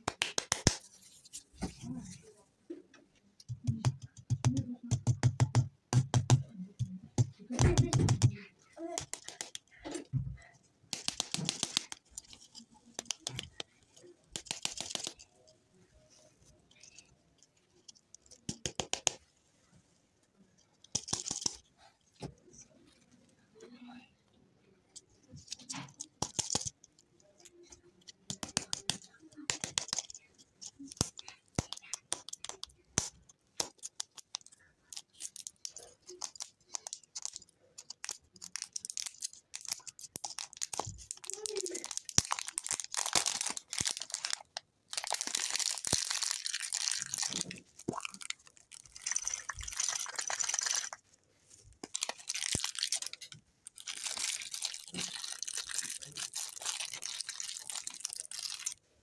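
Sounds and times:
plastic toy balls clicking: 0:03.4 - 0:09.8, 0:10.9 - 0:15.4, 0:17.9 - 0:19.2, 0:20.8 - 0:21.7, 0:25.5 - 0:51.0
plastic wrapper crackling: 0:33.6 - 0:51.0, 0:51.8 - 0:58.8.

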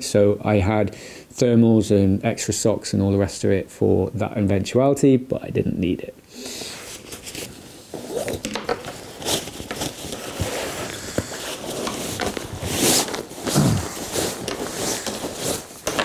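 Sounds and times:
nylon sleeping bag rustling: 0:06.9 - 0:16.0.

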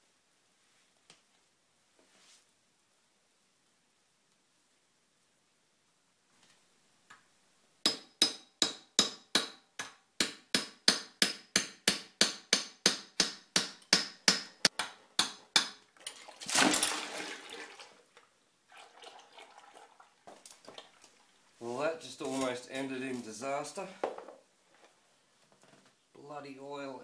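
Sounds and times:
hammer striking metal punch: 0:07.9 - 0:15.8.

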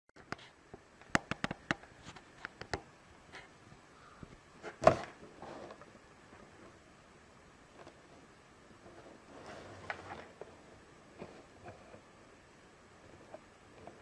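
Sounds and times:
box thump: 0:04.7 - 0:05.2.

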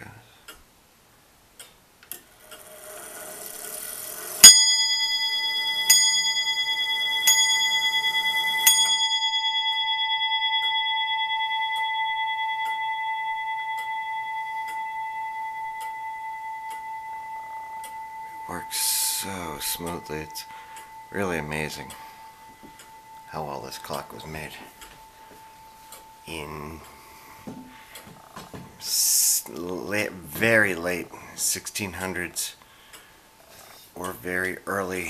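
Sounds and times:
clock movement whirring: 0:01.5 - 0:35.0
clock bell striking: 0:03.7 - 0:27.1.

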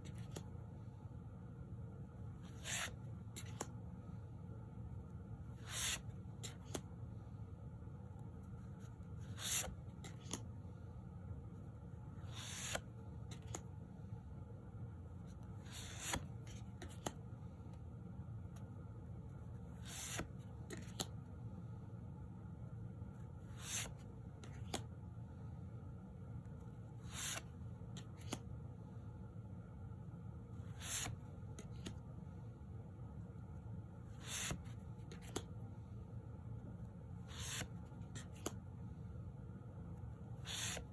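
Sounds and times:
cards sliding swishes: 0:00.0 - 0:00.8, 0:02.0 - 0:04.2, 0:05.1 - 0:10.8, 0:11.5 - 0:14.5, 0:15.1 - 0:21.4, 0:23.0 - 0:25.0, 0:26.4 - 0:28.9, 0:30.4 - 0:32.4, 0:33.2 - 0:36.0, 0:36.6 - 0:39.1, 0:39.9 - 0:40.9
low steady hum: 0:00.0 - 0:40.9
card edges tapping: 0:19.9 - 0:21.2.

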